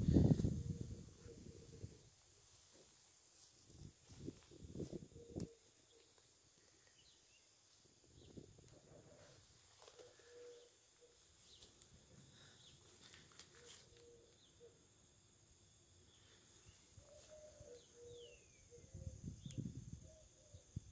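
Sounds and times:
low bird call: 9.8 - 11.7, 16.7 - 20.7.

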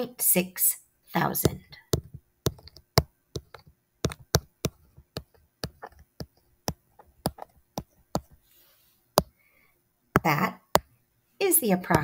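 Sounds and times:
stylus tapping on touchscreen: 1.4 - 8.4, 10.2 - 10.9.

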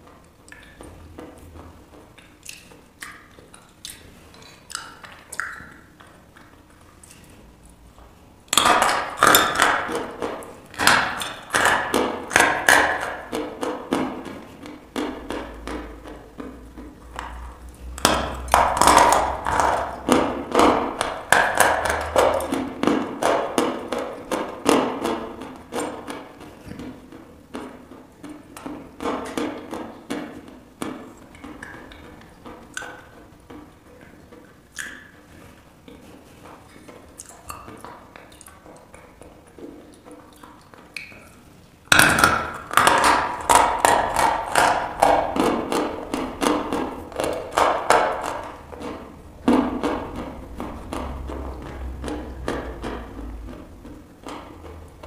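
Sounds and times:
chalk crunching and chewing: 0.4 - 7.8, 33.9 - 41.3.

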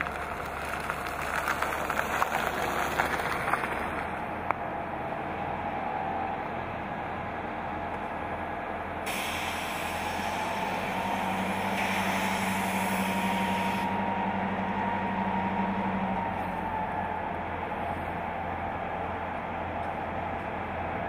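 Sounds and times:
diesel locomotive engine: 0.0 - 21.0
air brake hiss: 9.0 - 13.9.

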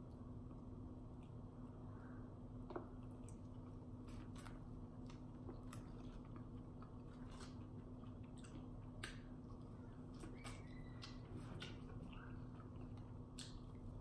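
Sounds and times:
faint low hum: 0.0 - 14.0
chewing mouth sounds: 2.9 - 14.0.

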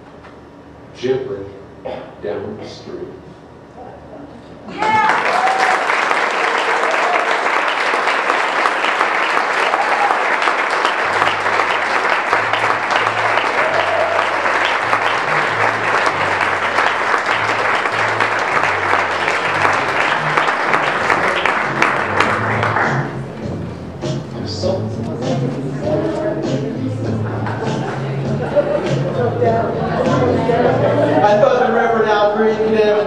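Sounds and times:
audience applauding: 4.7 - 23.4
low bass music: 11.0 - 33.0.

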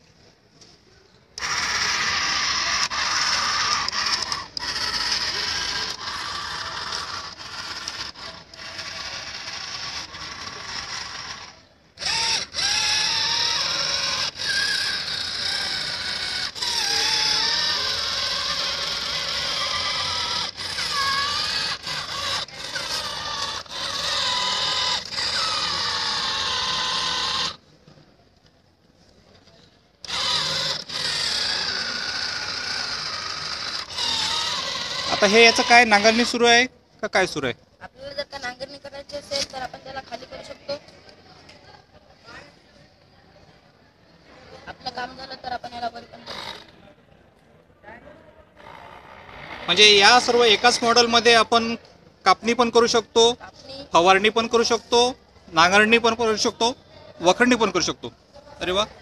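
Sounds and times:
electric gear motors whining: 1.3 - 28.0, 30.0 - 37.4, 45.2 - 46.8, 48.5 - 58.9.

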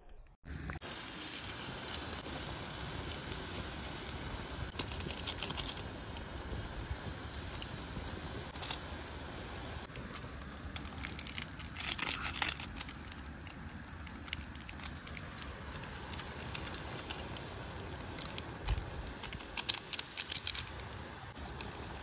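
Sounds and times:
wood fire crackling: 0.5 - 22.0
rustling: 9.8 - 22.0.

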